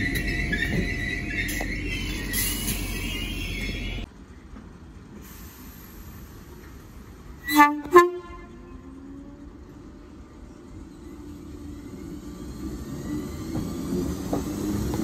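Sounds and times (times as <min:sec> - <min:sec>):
train horn: 0:07.4 - 0:08.8
electric train running noise: 0:08.6 - 0:15.0.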